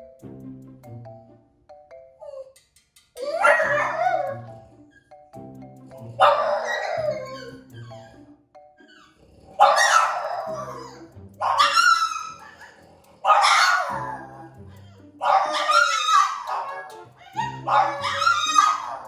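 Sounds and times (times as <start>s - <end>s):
background music: 0.0s - 19.0s
dog barking: 3.3s - 4.7s, 6.2s - 8.2s, 9.5s - 19.0s.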